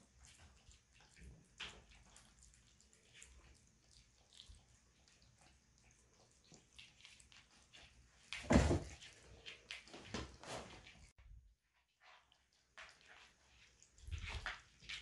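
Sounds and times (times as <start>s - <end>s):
thump on floor: 8.4s - 8.9s.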